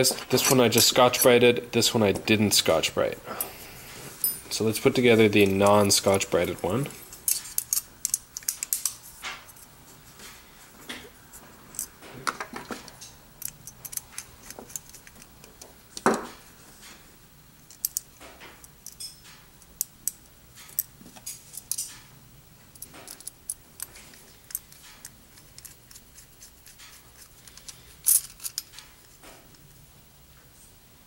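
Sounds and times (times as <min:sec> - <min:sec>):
small metallic clicks and clinks: 0:18.8 - 0:22.1.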